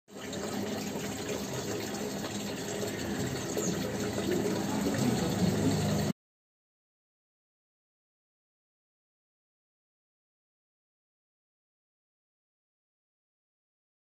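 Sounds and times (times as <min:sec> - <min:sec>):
rushing water: 0:00.1 - 0:06.1.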